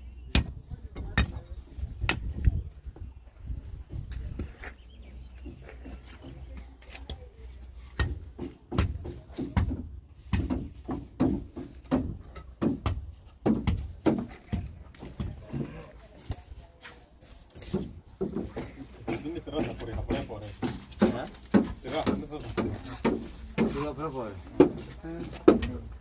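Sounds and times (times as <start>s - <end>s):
wind buffeting the microphone: 0.4s - 5.6s.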